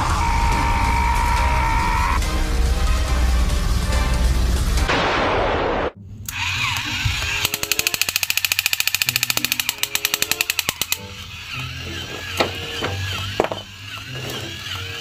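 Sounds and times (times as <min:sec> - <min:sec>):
explosion sound effect: 0:04.8 - 0:06.0
toy machine-gun sound effect: 0:06.3 - 0:15.0.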